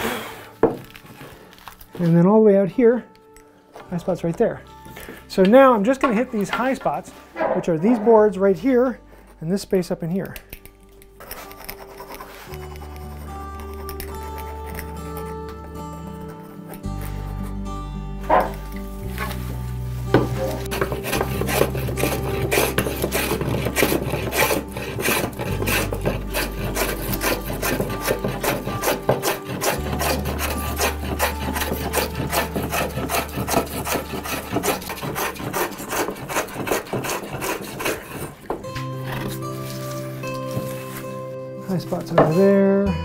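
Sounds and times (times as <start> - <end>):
hand plane rasping on wood: 20.1 - 41.0.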